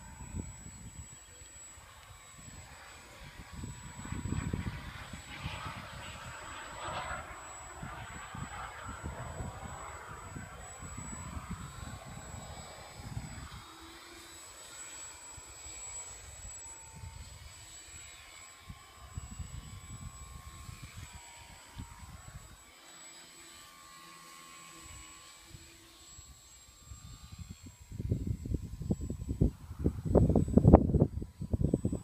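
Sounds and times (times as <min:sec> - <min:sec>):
wind gusting on microphone: 0:00.0 - 0:13.8, 0:18.6 - 0:21.2, 0:26.2 - 0:32.0
model plane propeller whine: 0:00.0 - 0:32.0.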